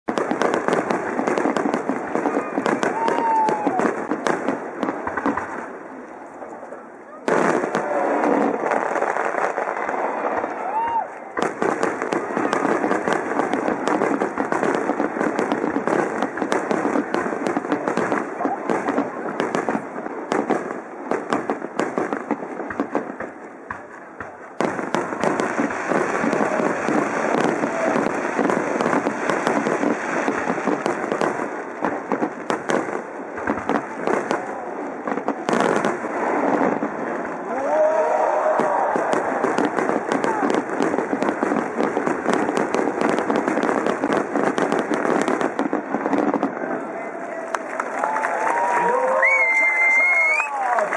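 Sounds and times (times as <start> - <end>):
continuous dense crackling: 0.0 - 50.9
firework shells bursting: 0.1 - 5.6, 10.6 - 34.5.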